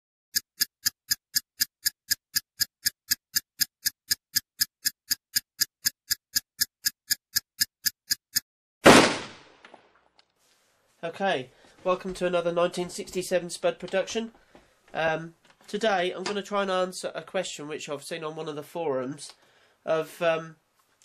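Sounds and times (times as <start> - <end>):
steady ticking: 0.3 - 8.4
gunshot sound effect: 8.8 - 9.6.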